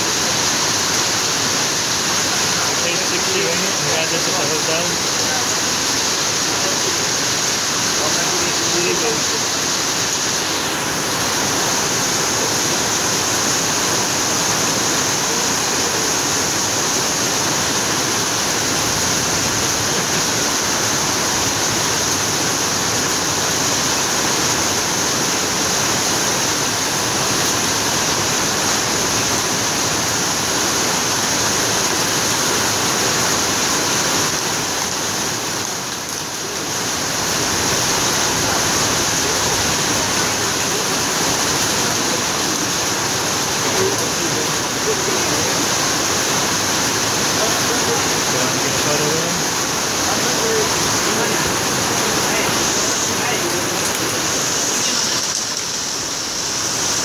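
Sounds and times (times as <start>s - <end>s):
water rushing: 0.0s - 57.0s
high hiss: 36.4s - 57.0s.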